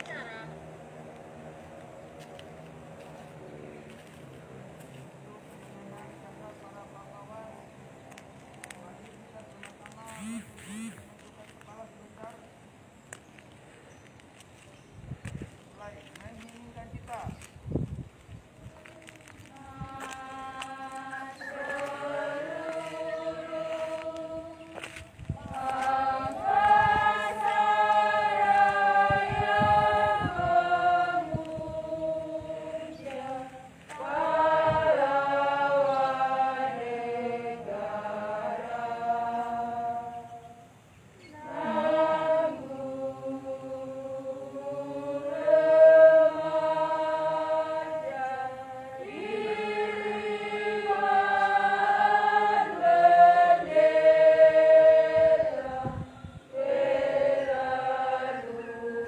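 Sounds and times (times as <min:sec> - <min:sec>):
group of people singing: 0:19.6 - 0:59.0.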